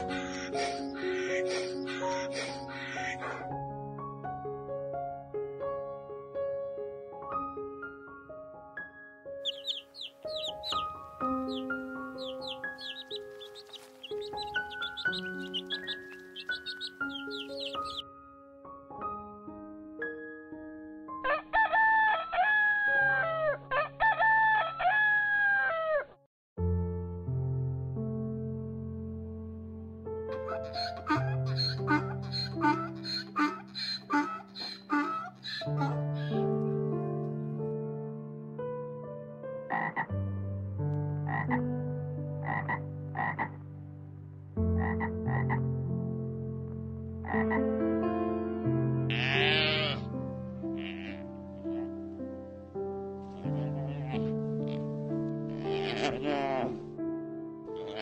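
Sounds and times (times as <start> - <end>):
soft background music: 0.0 - 25.6, 26.6 - 58.0
rooster crowing: 21.3 - 26.1.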